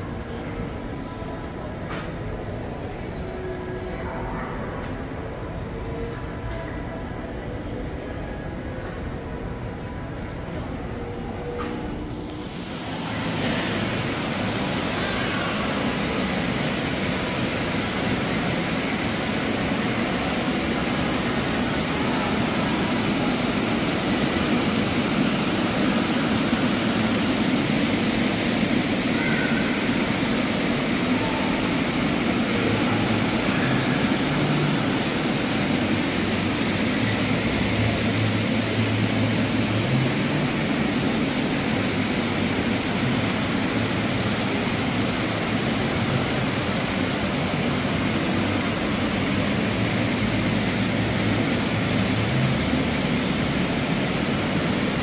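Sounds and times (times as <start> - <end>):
fountain water splashing into pool: 12.5 - 55.0.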